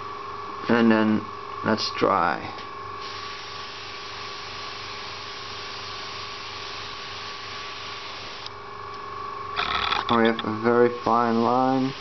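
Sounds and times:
airbrush hissing: 3.0s - 8.5s, 10.9s - 12.0s
air compressor humming: 3.0s - 8.6s, 9.5s - 12.0s.

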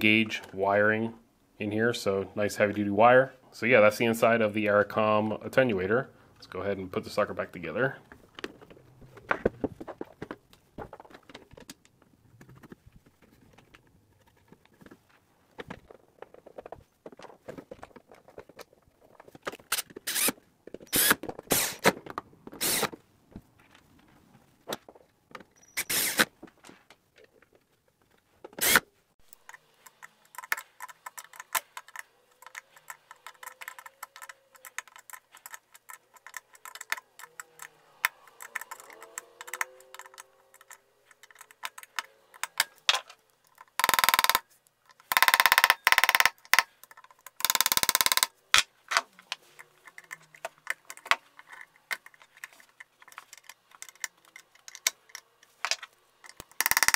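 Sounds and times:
harsh rasping bursts: 19.7s - 21.9s, 22.6s - 22.9s, 25.8s - 26.3s
faint squeaks: 25.5s - 26.2s
fine rapid ticking: 43.8s - 44.4s, 45.1s - 46.7s, 47.4s - 48.3s, 56.5s - 56.9s.

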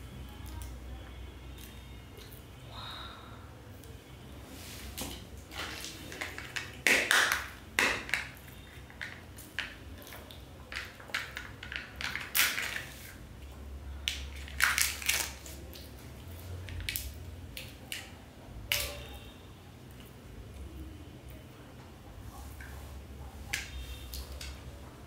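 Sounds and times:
foil wrappers crinkling and tearing: 14.3s - 15.9s.

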